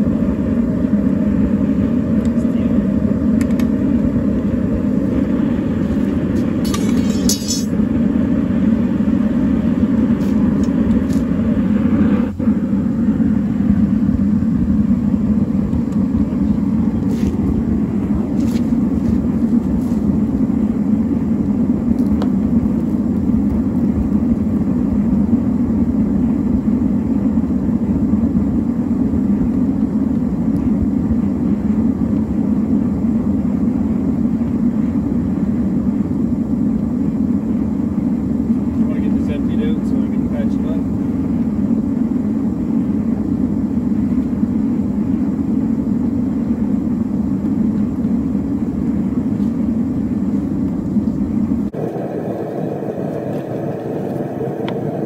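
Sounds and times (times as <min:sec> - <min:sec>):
furnace burner roaring: 0:00.0 - 0:55.0.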